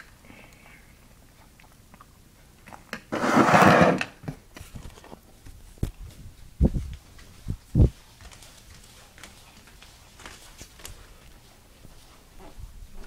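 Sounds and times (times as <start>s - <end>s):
rubbing scrape on recorder: 3.1s - 4.0s.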